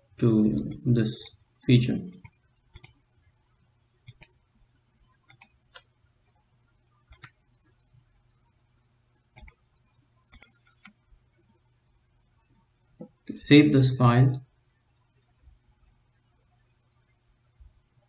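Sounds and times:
computer mouse clicking: 0:00.6 - 0:01.4, 0:02.1 - 0:03.0, 0:04.0 - 0:04.4, 0:05.2 - 0:05.9, 0:07.1 - 0:07.4, 0:09.3 - 0:09.7, 0:10.3 - 0:11.1.

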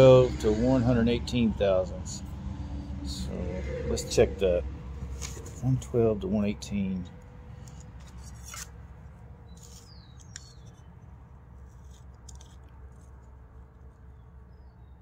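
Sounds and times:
caliper clicks and scrapes: 0:07.6 - 0:08.8, 0:09.5 - 0:10.9, 0:11.6 - 0:13.4.

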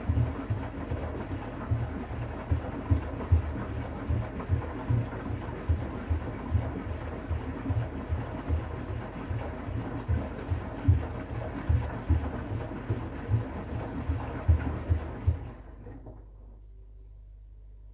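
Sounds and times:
washing machine drum turning: 0:00.0 - 0:16.2.

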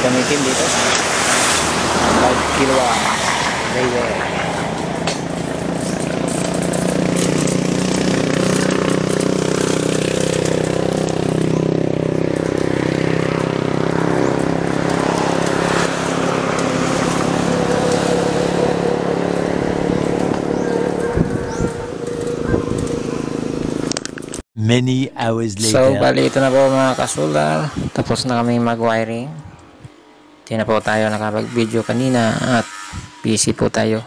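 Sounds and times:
vehicle engine running: 0:00.0 - 0:24.4.

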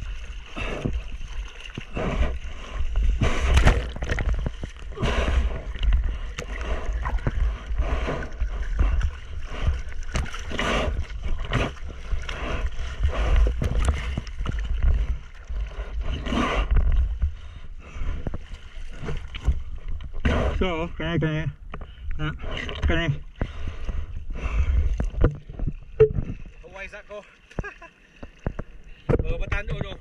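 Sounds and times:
wind rumbling on microphone: 0:00.0 - 0:20.6
sea water splashing: 0:00.0 - 0:20.7.

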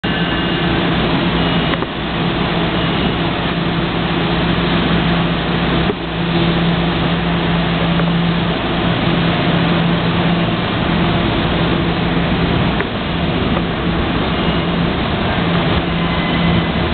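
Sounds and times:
diesel locomotive engine droning: 0:00.0 - 0:16.9
loud station din: 0:13.3 - 0:16.9.

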